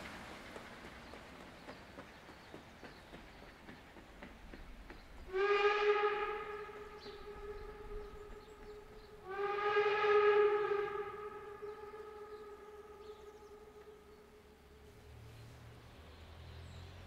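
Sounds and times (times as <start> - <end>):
steam locomotive whistle blasts: 5.3 - 14.1.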